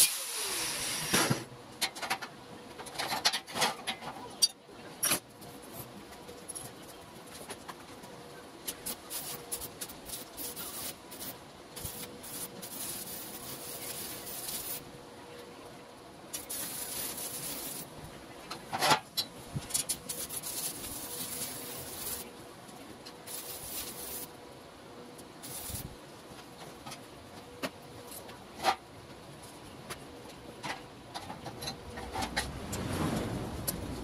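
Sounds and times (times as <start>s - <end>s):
welding arc crackling and hissing: 0.0s - 1.5s, 8.7s - 14.9s, 16.3s - 18.1s, 19.8s - 22.3s, 23.2s - 24.3s, 25.4s - 26.0s.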